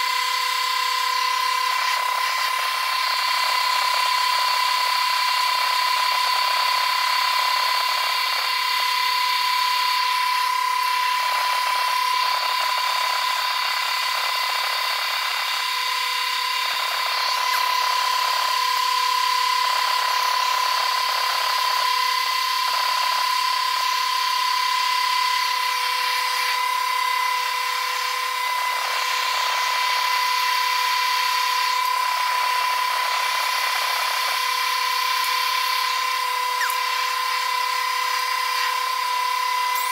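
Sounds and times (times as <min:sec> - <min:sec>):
steady high whine: 0:00.0 - 0:39.9
welding arc crackle and hiss: 0:12.4 - 0:20.2, 0:29.1 - 0:39.9.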